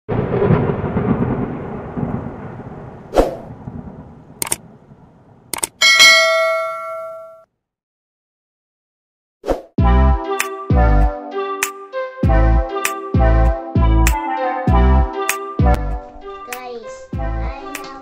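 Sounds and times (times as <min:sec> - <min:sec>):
bell-like notification chime: 0:05.8 - 0:07.4, 0:14.2 - 0:15.2.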